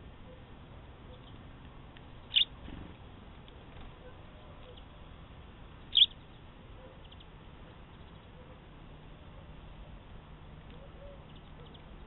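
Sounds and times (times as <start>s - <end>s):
songbird chirping: 1.1s - 2.6s, 5.8s - 10.0s, 10.6s - 12.0s.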